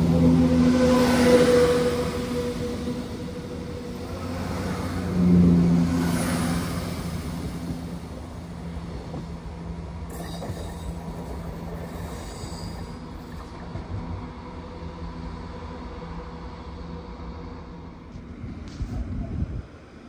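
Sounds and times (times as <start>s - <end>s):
diesel train engine drone: 0.0s - 20.0s.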